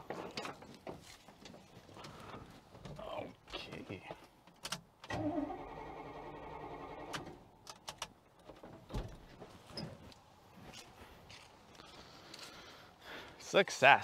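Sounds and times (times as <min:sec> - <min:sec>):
starter motor cranking engine: 0:05.1 - 0:07.4.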